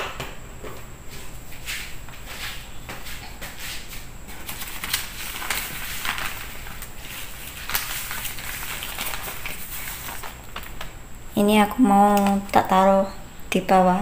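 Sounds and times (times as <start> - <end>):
newspaper rustling: 3.5 - 12.9
dry noodles crackling on paper: 4.3 - 13.0.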